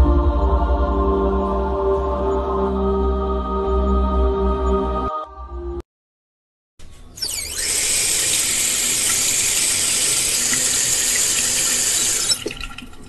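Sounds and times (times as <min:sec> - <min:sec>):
shower spraying water: 0:07.2 - 0:13.0.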